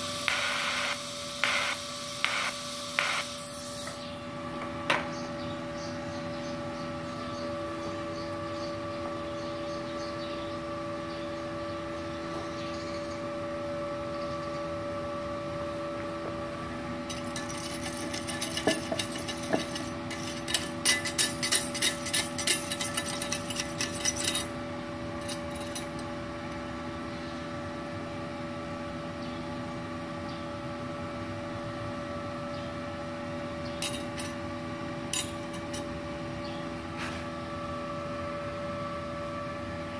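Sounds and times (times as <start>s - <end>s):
welder humming: 0.0s - 4.2s, 16.5s - 26.6s
rapid scraping and clicking: 17.1s - 24.5s.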